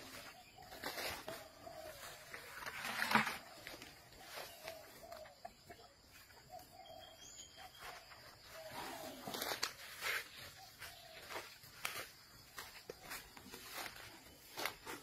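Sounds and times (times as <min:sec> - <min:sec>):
elephant chewing crunch: 0:00.0 - 0:07.0, 0:07.6 - 0:15.0
rustling crackling foliage: 0:08.4 - 0:15.0.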